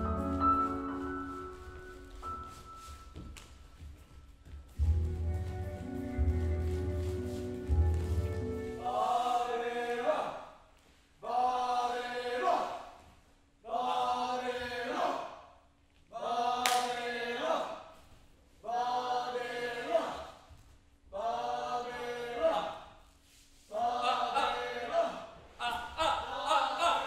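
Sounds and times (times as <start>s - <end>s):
group of voices chanting: 11.2s - 12.9s, 13.6s - 15.5s, 18.6s - 20.4s, 21.1s - 22.9s, 23.7s - 27.0s.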